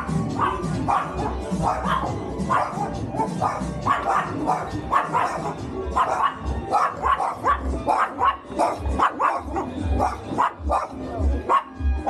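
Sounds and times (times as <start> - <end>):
dog barking: 0.0 - 11.9.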